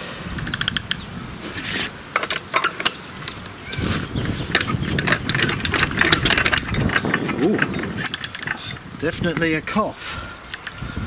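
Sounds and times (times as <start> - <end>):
engine crank clattering and ratcheting: 2.1 - 9.6.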